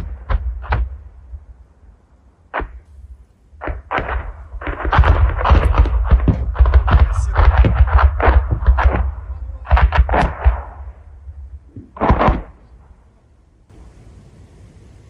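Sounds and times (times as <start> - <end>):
rocket explosions: 0.0 - 15.0
low rumble: 12.6 - 15.0.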